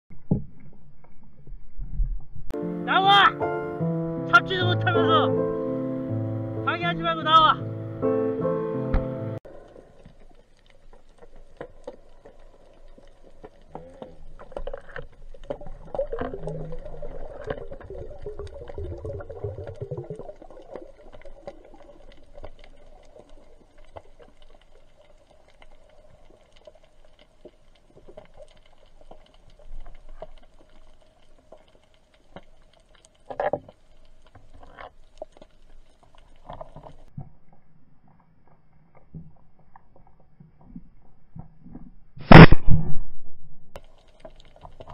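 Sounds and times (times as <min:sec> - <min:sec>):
muffled underwater water movement: 0:09.0 - 0:43.0, 0:43.7 - 0:44.9
sharp knock: 0:42.3 - 0:43.0.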